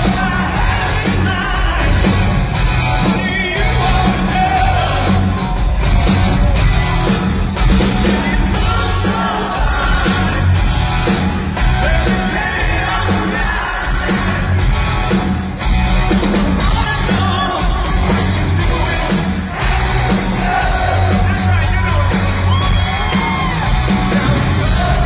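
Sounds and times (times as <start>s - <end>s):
shouted lead vocal: 0.0s - 5.8s, 8.0s - 10.7s, 11.6s - 14.7s, 16.6s - 25.0s
drums: 0.0s - 25.0s
electric bass: 0.0s - 25.0s.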